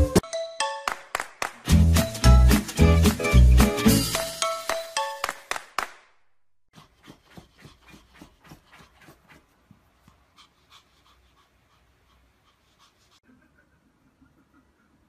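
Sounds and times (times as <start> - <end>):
dog panting rapidly: 6.8 - 13.2.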